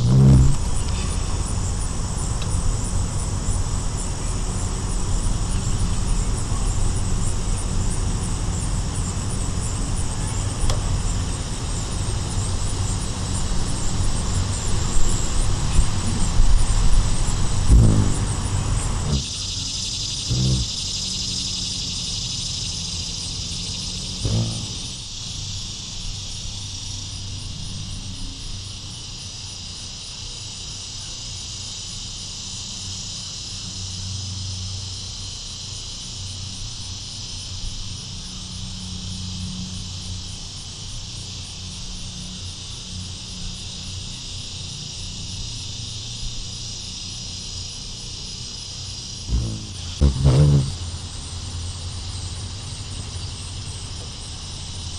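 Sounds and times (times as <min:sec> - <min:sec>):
insect chorus: 0:00.0 - 0:54.9.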